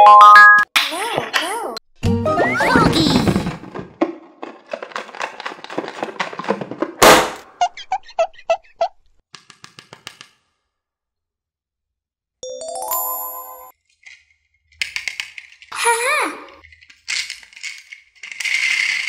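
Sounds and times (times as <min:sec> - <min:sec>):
plastic crackling and rustling: 0:03.0 - 0:07.0, 0:16.6 - 0:19.0
loud pop: 0:07.0 - 0:07.4.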